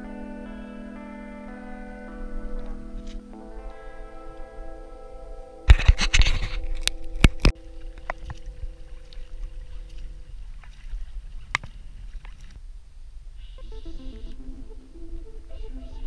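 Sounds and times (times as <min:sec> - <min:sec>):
background music note: 0:00.0 - 0:10.5, 0:13.6 - 0:16.0
water rumble: 0:06.0 - 0:13.8.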